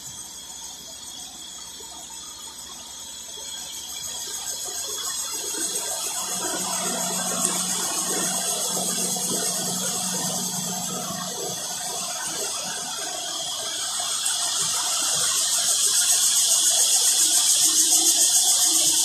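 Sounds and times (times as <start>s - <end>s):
cicadas buzzing in chorus: 0.0s - 19.0s.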